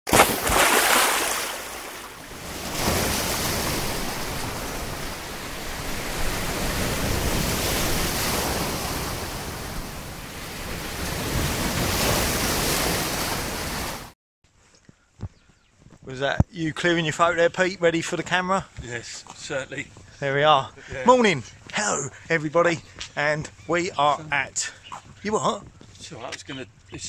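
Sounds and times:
sea waves breaking: 0.1 - 14.2.

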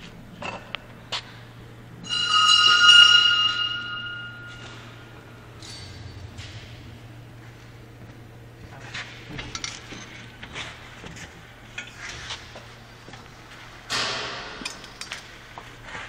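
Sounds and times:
steady low hum: 0.0 - 16.0
light metallic clinks and knocks: 5.6 - 6.9, 9.2 - 10.8, 13.9 - 15.4.

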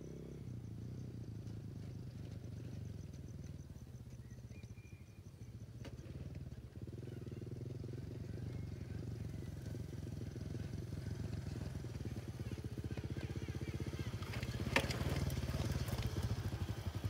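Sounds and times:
insects chirping faintly: 0.0 - 7.1
small motorcycle engine: 0.0 - 17.0.

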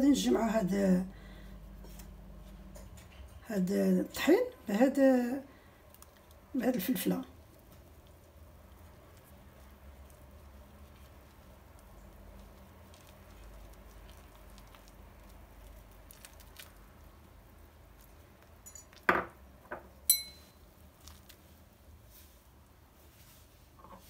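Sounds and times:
glass clinking against glass: 18.6 - 19.3, 20.1 - 20.6.

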